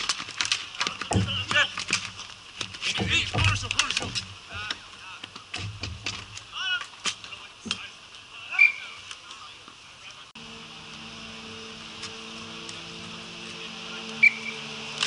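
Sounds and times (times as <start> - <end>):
hockey sticks clacking on ball: 0.0 - 8.0
low engine-like hum: 10.1 - 15.0.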